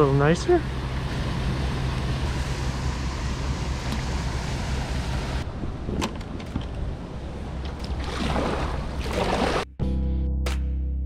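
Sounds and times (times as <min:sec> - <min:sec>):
wind rumble on microphone: 0:01.0 - 0:09.6
rush of water from paddle: 0:07.8 - 0:09.6.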